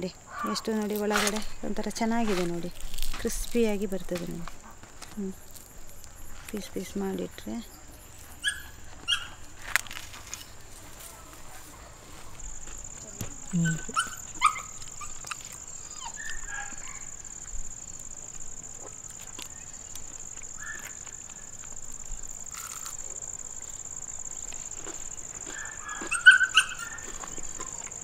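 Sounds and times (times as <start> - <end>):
high insect trill: 0.0 - 28.0
dog yipping: 8.4 - 9.4, 13.6 - 17.1, 25.5 - 27.3.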